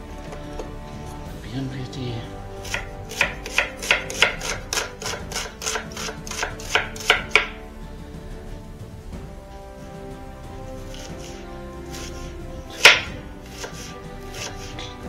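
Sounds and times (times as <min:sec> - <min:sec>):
knife chopping on cutting board: 0:02.6 - 0:07.6, 0:12.8 - 0:14.8.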